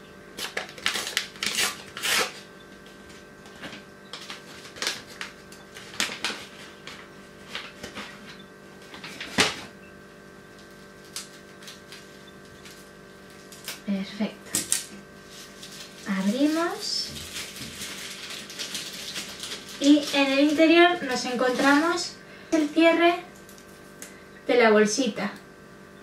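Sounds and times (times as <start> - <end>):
faint steady hum: 0.0 - 26.0
plastic packet crinkling and tearing: 0.4 - 2.4, 3.7 - 8.1, 10.6 - 13.8, 14.7 - 22.0.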